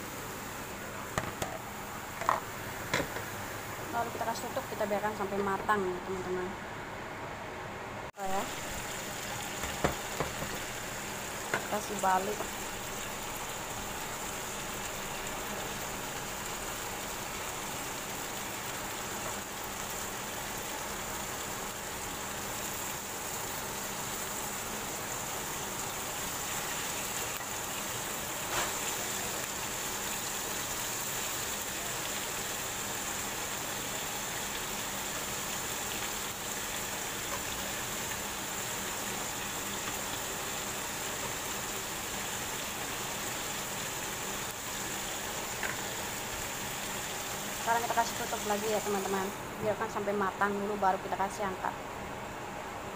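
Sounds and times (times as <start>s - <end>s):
chicken sizzling in a pan: 8.2s - 49.4s.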